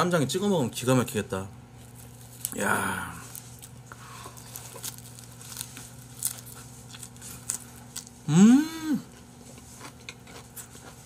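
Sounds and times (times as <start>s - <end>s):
man humming: 2.5s - 3.4s, 8.3s - 9.1s.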